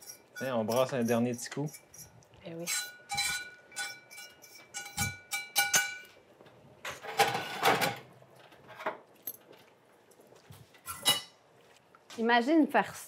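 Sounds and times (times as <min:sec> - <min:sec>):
metal spoon clinking on pot: 0:00.0 - 0:06.1
pot and lid clattering: 0:06.9 - 0:08.1.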